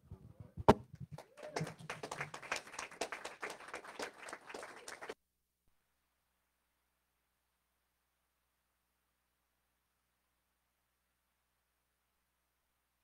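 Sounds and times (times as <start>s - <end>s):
microphone knocking on wood: 0.0s - 1.2s
congregation clapping: 0.7s - 5.2s.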